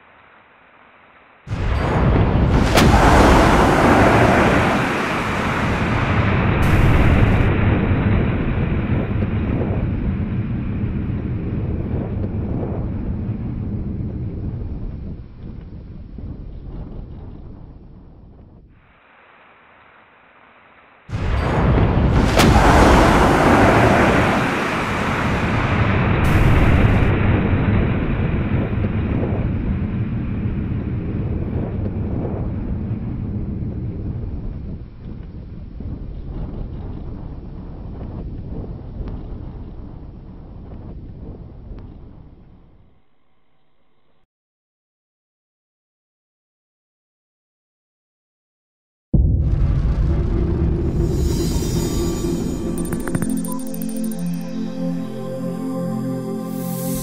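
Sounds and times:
rocket launch roar: 0:01.5 - 0:12.1, 0:21.1 - 0:29.7, 0:49.2 - 0:54.2.

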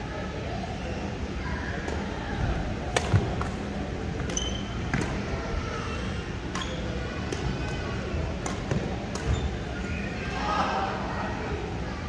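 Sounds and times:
rackets hitting shuttlecock: 0:02.9 - 0:03.6, 0:08.4 - 0:09.5
shoes squeaking on court: 0:04.3 - 0:05.0, 0:08.7 - 0:10.1.

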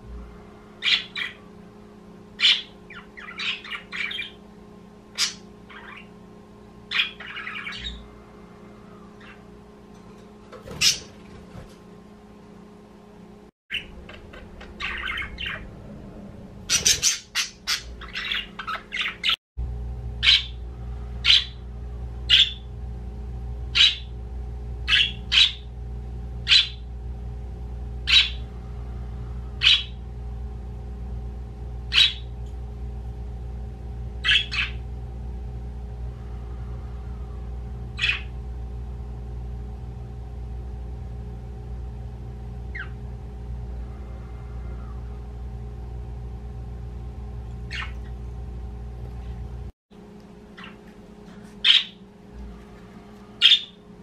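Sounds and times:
steady low hum: 0:00.0 - 0:54.0
budgerigars chirping: 0:00.8 - 0:01.5, 0:02.4 - 0:04.4, 0:05.2 - 0:06.1, 0:06.9 - 0:08.1, 0:13.7 - 0:15.7, 0:16.7 - 0:19.4, 0:20.2 - 0:20.6, 0:21.2 - 0:21.6, 0:22.3 - 0:22.7, 0:23.8 - 0:24.1, 0:24.9 - 0:25.7, 0:26.5 - 0:26.8, 0:28.1 - 0:28.5, 0:29.6 - 0:30.0, 0:31.9 - 0:32.3, 0:34.2 - 0:34.8, 0:38.0 - 0:38.3, 0:42.7 - 0:43.0, 0:47.7 - 0:48.2, 0:50.6 - 0:50.8, 0:51.6 - 0:52.0, 0:53.4 - 0:53.8.

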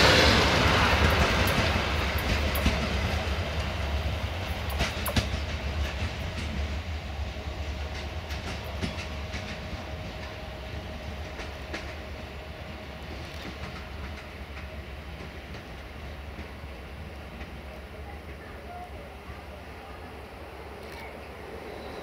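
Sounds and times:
train rolling rumble: 0:00.0 - 0:22.0
wheel clicks over rail joints: 0:04.5 - 0:06.6.

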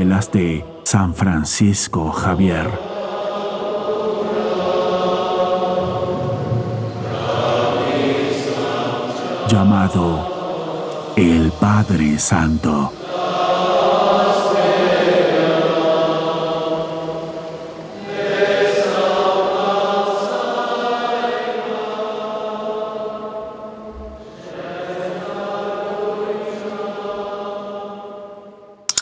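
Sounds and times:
chanted voices singing held notes: 0:00.0 - 0:28.8
low drone: 0:05.5 - 0:15.0.

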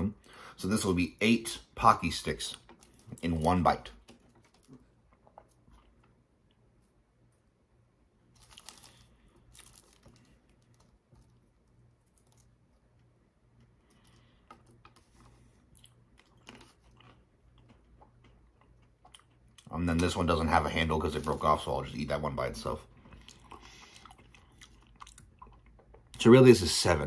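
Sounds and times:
foil wrapper crinkling: 0:08.3 - 0:11.4.

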